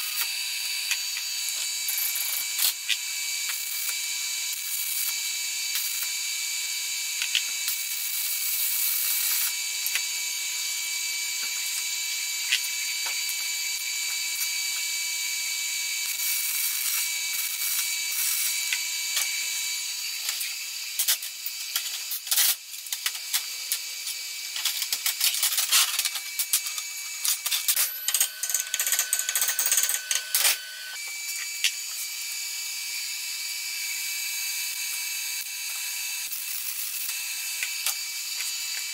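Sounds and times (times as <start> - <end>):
welding arc crackling: 16.0 - 32.1.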